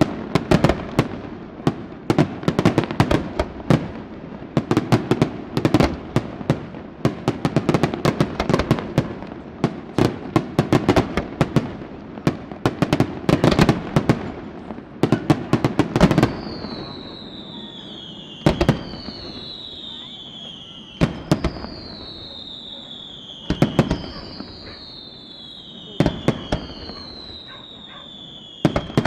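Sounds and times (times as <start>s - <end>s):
fireworks bangs and crackles: 0.0s - 29.0s
falling high whistle: 16.2s - 29.0s.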